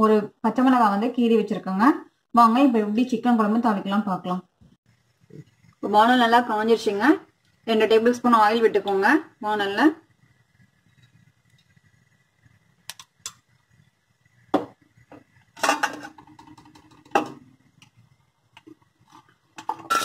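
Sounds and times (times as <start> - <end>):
metal utensils and pans clattering: 15.6 - 17.4, 19.1 - 20.0.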